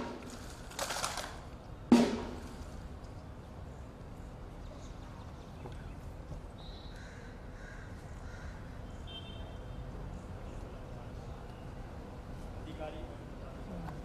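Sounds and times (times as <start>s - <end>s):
faint open-air ambience: 0.0s - 14.0s
caw-like bird calls: 6.8s - 9.2s.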